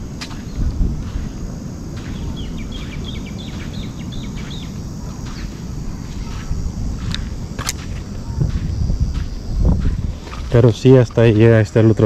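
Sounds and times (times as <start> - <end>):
steady low rumble: 0.0 - 12.0
bird chirping: 2.1 - 6.5.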